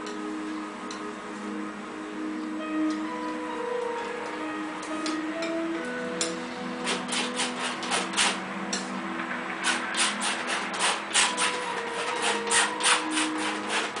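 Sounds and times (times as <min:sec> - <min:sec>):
palette knife scraping paint: 0:06.8 - 0:08.4, 0:09.6 - 0:14.0.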